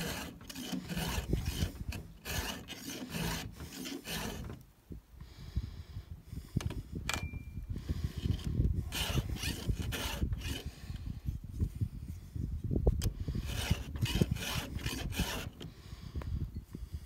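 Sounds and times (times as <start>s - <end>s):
file rasping on saw chain teeth: 0.0s - 4.6s, 8.4s - 10.8s, 13.3s - 15.7s.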